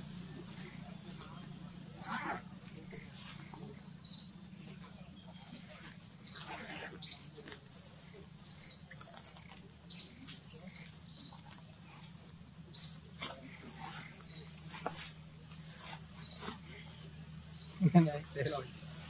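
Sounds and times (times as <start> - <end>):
animal chirping: 1.6 - 4.4.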